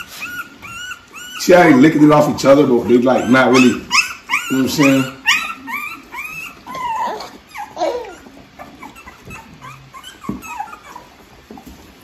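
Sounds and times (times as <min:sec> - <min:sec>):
puppies whimpering and squealing: 0:00.0 - 0:12.0.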